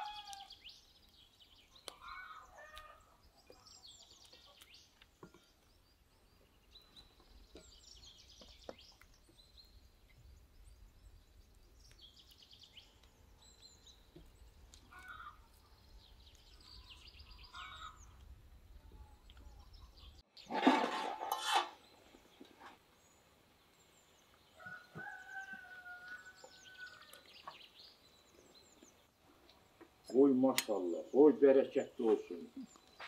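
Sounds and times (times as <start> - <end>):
chickens calling: 0.0 - 0.6, 1.6 - 5.0, 16.4 - 18.3
small birds chirping: 0.0 - 33.0
rooster crowing: 24.6 - 27.2.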